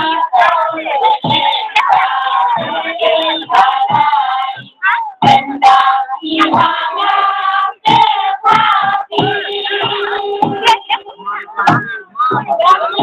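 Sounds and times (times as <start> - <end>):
group of voices singing: 0.0 - 13.0.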